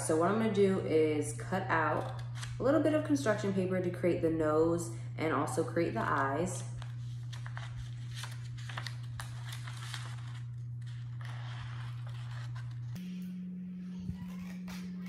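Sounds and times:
scissors cutting paper: 1.7 - 2.7, 6.8 - 13.0
steady low tone: 10.7 - 15.0.

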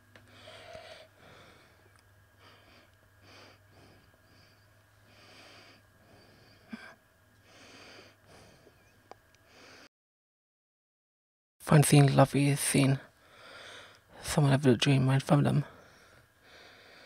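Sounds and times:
faint steady hum: 0.0 - 9.9, 11.6 - 17.0
person breathing and sniffing: 0.3 - 8.8.

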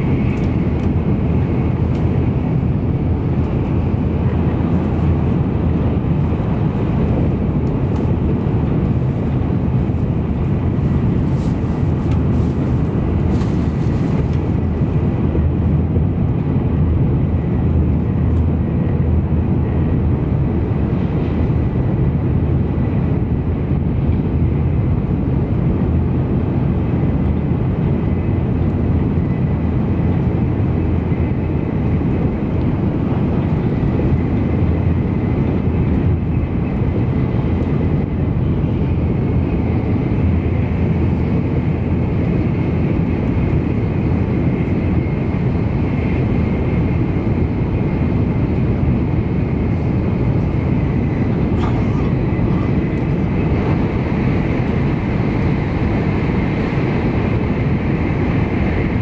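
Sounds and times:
train cabin rumble: 0.0 - 59.0.

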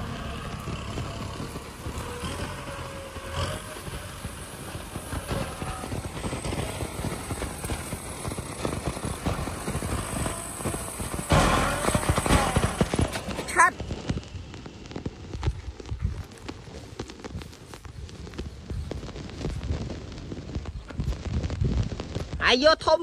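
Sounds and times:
dense irregular clatter: 0.0 - 18.4
tractor diesel engine under load: 0.0 - 18.4.

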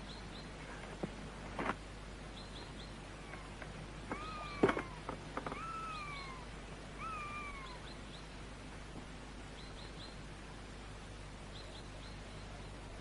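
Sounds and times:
faint steady background noise: 0.0 - 13.0
drawn-out falling animal calls: 2.7 - 8.5.

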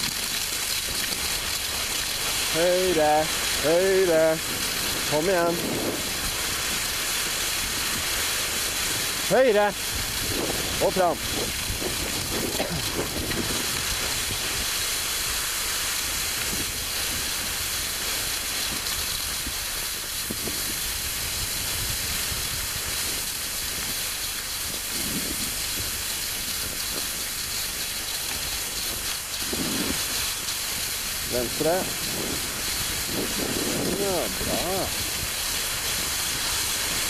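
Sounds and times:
skis hissing over snow: 0.0 - 37.0
wind on microphone: 2.6 - 7.0, 8.7 - 14.8, 20.2 - 24.0, 24.6 - 27.1, 29.4 - 37.0.

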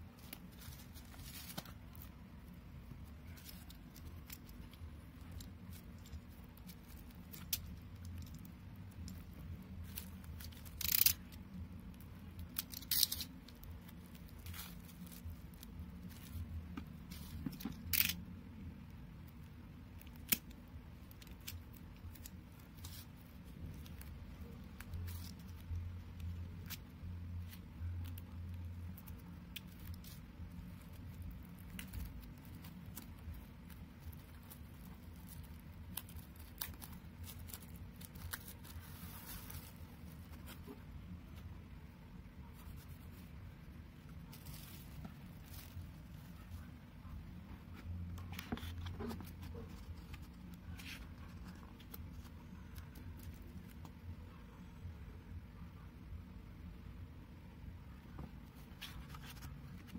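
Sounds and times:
steady low hum: 0.0 - 59.9
tape seal tearing: 10.0 - 11.4, 12.4 - 13.4, 17.6 - 18.3.

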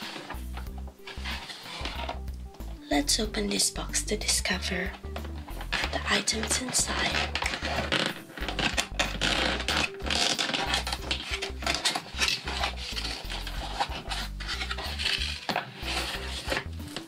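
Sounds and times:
light background music: 0.0 - 17.0
plastic toy pieces rattling: 5.5 - 16.6.

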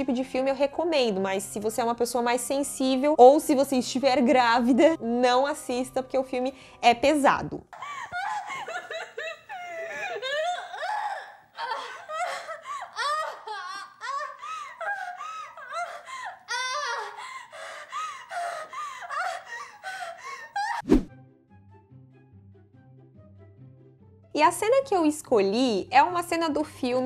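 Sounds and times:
woman crying out and gasping: 7.8 - 20.8.

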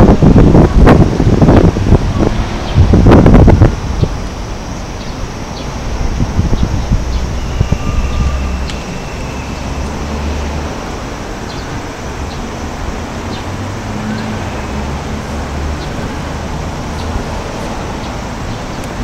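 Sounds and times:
wind buffeting microphone: 0.0 - 14.0
steady outdoor hiss: 0.0 - 19.0.

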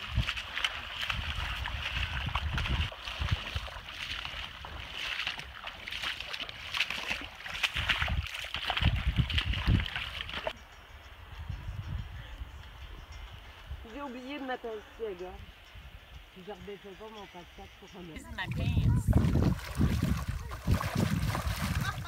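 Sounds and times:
wind buffeting microphone: 0.0 - 4.9, 7.7 - 13.9, 18.2 - 22.0
boots splashing through water: 0.0 - 10.6, 18.6 - 22.0.

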